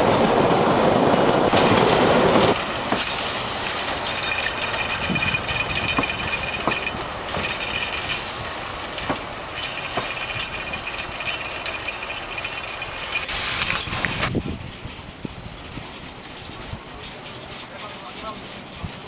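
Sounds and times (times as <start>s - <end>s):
train wheels clattering on track: 0.0s - 19.0s
high wheel squeal: 2.9s - 14.3s.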